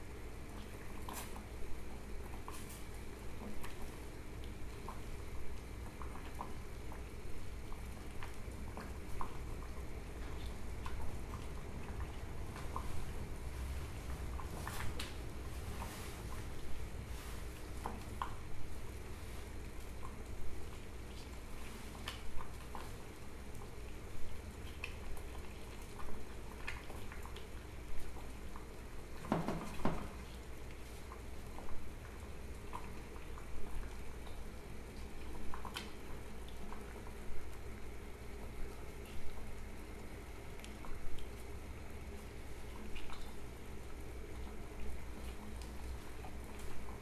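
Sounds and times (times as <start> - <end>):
bubbles popping in boiling water: 0.0 - 47.0
low rumble of boiling: 0.0 - 47.0.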